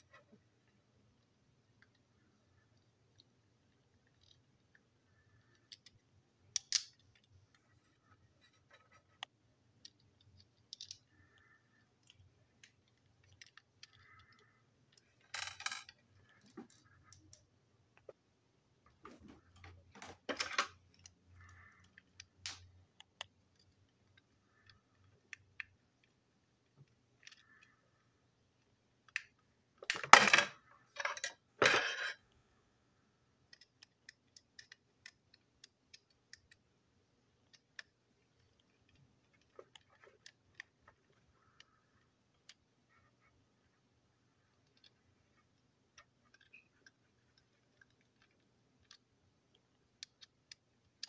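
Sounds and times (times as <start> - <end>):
plastic parts clattering: 19.0 - 22.6
plastic toy clicking and knocking: 33.4 - 36.7.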